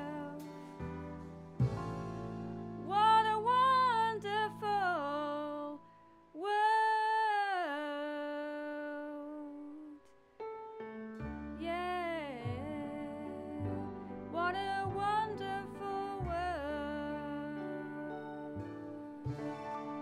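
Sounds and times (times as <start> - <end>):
woman singing wordless phrases: 0.0 - 0.5, 2.9 - 10.1, 11.6 - 19.3
soft accompaniment chords: 0.0 - 6.4, 9.4 - 20.0.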